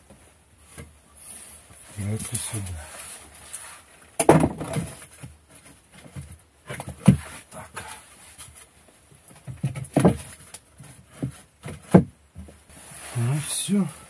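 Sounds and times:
wooden boards knocking on floor: 4.2 - 5.3, 11.1 - 12.1.

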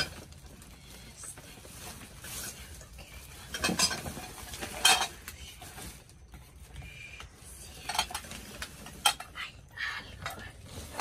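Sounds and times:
items knocking and clinking: 0.0 - 0.5, 3.4 - 5.3
plastic bags rustling: 0.0 - 9.3.

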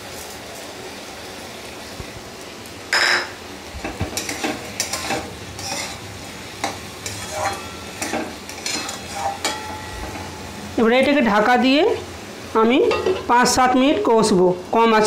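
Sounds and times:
frying sizzle: 0.0 - 15.0
metal spatula scraping a pan: 4.2 - 10.5.

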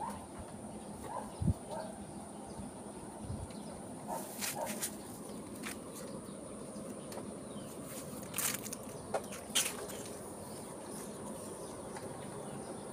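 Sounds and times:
garden background noise: 0.0 - 12.9.

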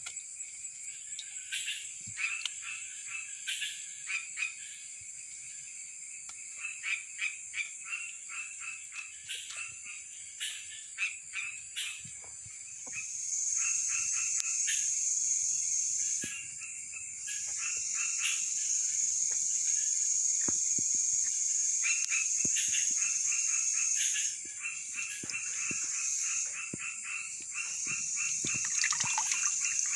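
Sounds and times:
frogs croaking: 0.0 - 29.9
high-pitched insect drone: 25.0 - 29.9.

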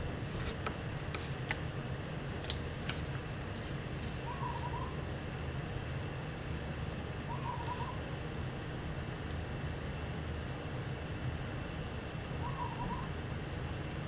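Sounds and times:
low background hum: 0.0 - 14.0
wavering hoot-like calls: 4.2 - 5.0, 7.2 - 8.0, 12.4 - 13.2.

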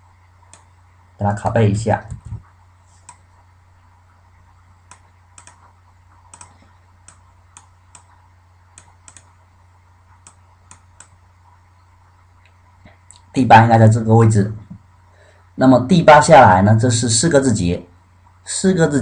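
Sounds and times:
steady low hum: 0.0 - 19.0
mouse and keyboard clicks: 4.9 - 9.4.

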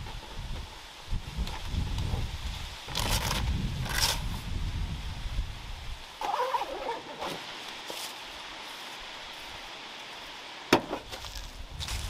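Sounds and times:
outdoor hiss: 0.0 - 12.0
tent lid creaking: 2.9 - 4.4, 6.2 - 8.1.

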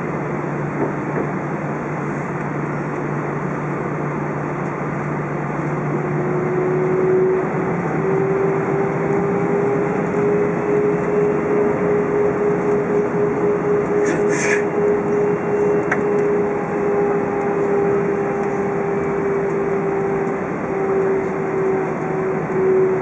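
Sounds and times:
jet engine whine: 0.0 - 23.0
airplane cabin rush: 9.8 - 23.0.

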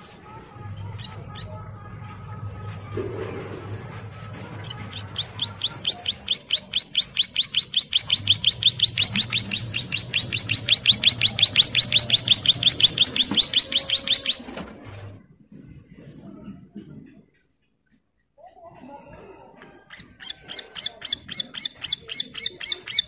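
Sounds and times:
bird singing fast high notes: 4.6 - 14.6.

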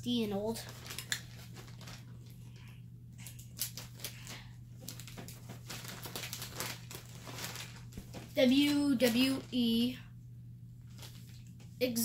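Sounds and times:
plastic zip bag crinkling: 0.5 - 2.4, 3.3 - 9.8, 10.8 - 11.6.

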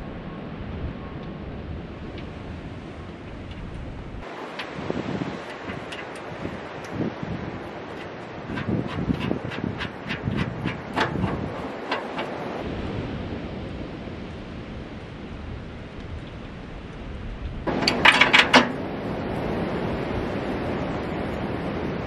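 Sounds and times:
wind on microphone: 0.0 - 22.0
sharp metal clicks: 17.7 - 18.8.

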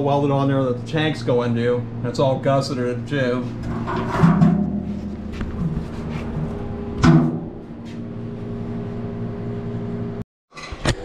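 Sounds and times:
low hum: 0.0 - 10.2
sharp knock: 7.0 - 7.5.

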